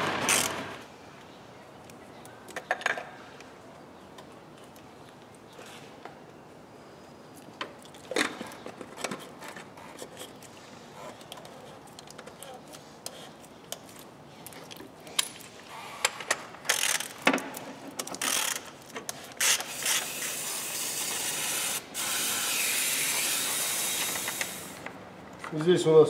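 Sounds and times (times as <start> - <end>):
steady hiss: 19.4 - 24.9.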